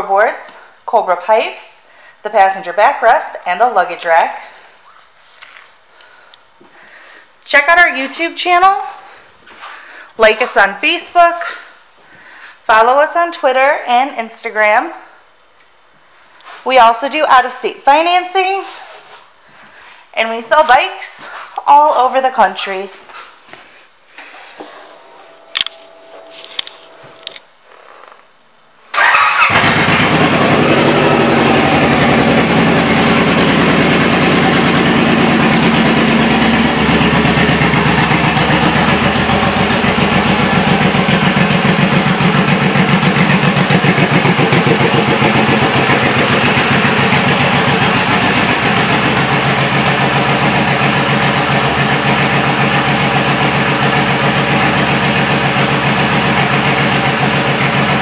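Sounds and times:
motorcycle engine starting and running: 0:28.9 - 0:58.0.

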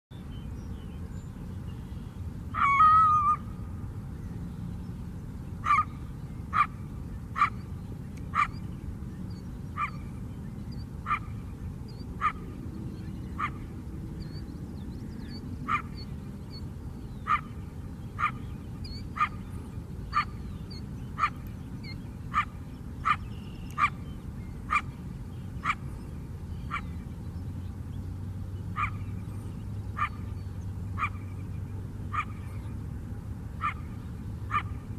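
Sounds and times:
low background rumble: 0:00.2 - 0:34.9
coyote high drawn-out call: 0:02.5 - 0:03.5, 0:05.6 - 0:06.8, 0:07.4 - 0:07.6, 0:08.3 - 0:08.6, 0:12.2 - 0:12.4, 0:15.7 - 0:16.1, 0:19.1 - 0:19.4, 0:21.2 - 0:24.0, 0:30.0 - 0:30.3, 0:31.0 - 0:31.2, 0:32.1 - 0:32.4, 0:33.6 - 0:33.9, 0:34.5 - 0:34.8
coyote barking: 0:02.6 - 0:03.4, 0:05.6 - 0:06.8, 0:07.4 - 0:07.7, 0:08.3 - 0:08.7, 0:09.8 - 0:10.0, 0:11.0 - 0:11.4, 0:12.2 - 0:12.5, 0:13.3 - 0:13.6, 0:15.6 - 0:16.1, 0:17.2 - 0:17.6, 0:18.2 - 0:19.5, 0:20.1 - 0:24.1, 0:24.7 - 0:25.0, 0:26.7 - 0:26.9, 0:28.8 - 0:29.1, 0:30.0 - 0:30.3, 0:31.0 - 0:31.2, 0:32.1 - 0:32.4, 0:33.6 - 0:33.9, 0:34.5 - 0:34.8.

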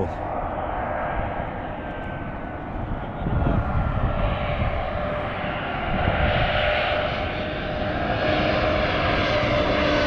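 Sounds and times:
jet engine rumble: 0:00.0 - 0:10.0
jet engine whining: 0:00.0 - 0:10.0.

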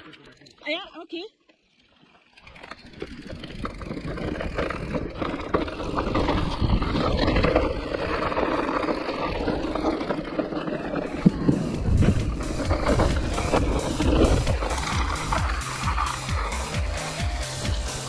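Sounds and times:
tyres rattling over rough trail: 0:00.0 - 0:18.0
wind buffeting microphone: 0:03.2 - 0:08.6, 0:11.1 - 0:15.2.

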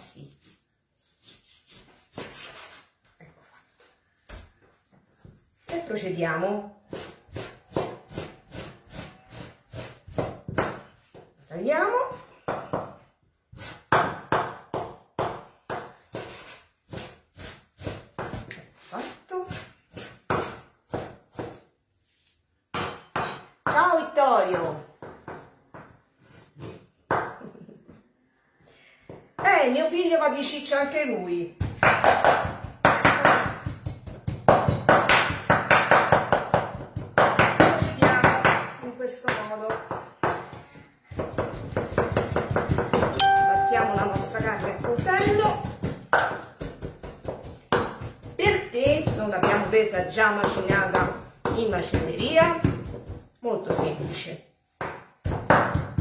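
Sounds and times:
knife chopping on wooden board: 0:06.9 - 0:10.8, 0:19.5 - 0:21.7, 0:22.7 - 0:23.8, 0:39.9 - 0:49.8.

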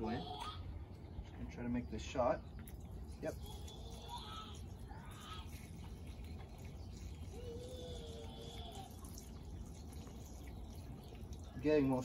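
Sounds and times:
faint birds calling: 0:00.0 - 0:12.0
gasoline trickling into fuel tank: 0:02.4 - 0:12.0.

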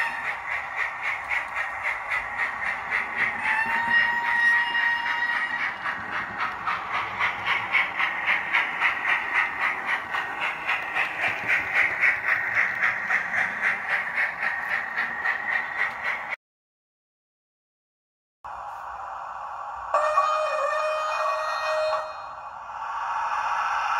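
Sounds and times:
model steam locomotive chuffing: 0:00.0 - 0:16.4.

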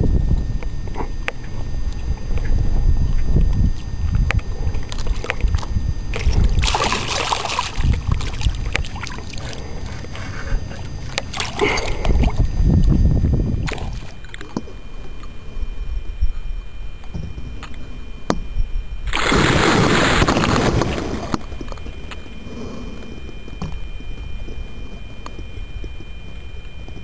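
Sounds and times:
wind rumbling on microphone: 0:00.0 - 0:27.0
water lapping at a boat: 0:00.9 - 0:18.4
rushing noise bursts: 0:19.1 - 0:21.7.

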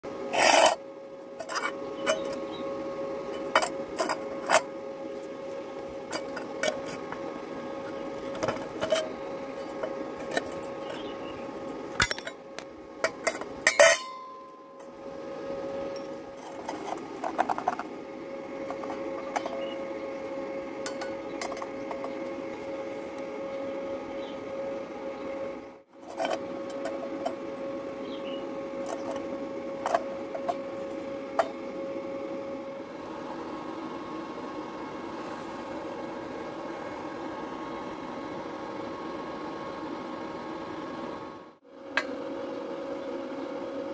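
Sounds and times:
steady hum: 0:00.0 - 0:43.9
metal tubes clinking on concrete: 0:13.0 - 0:14.9.

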